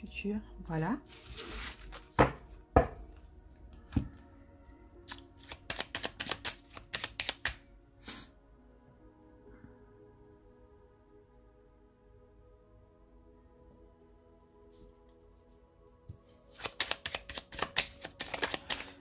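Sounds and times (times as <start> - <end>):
soft background music: 0.0 - 19.0
cards snapping while shuffled: 5.0 - 7.7, 16.5 - 19.0.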